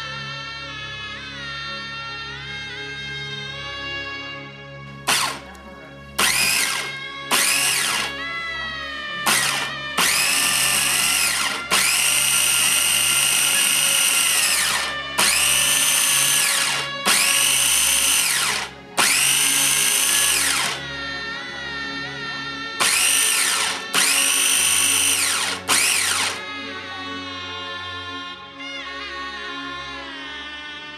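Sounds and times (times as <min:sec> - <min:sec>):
food processor motor whining: 0:05.1 - 0:05.6, 0:06.2 - 0:08.2, 0:09.2 - 0:20.8, 0:22.8 - 0:26.4.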